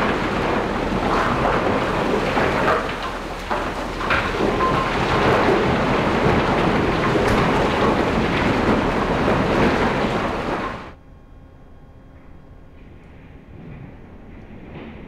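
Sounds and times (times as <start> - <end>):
coal pouring into rail car: 0.0 - 11.0
quiet steady hum: 0.0 - 15.0.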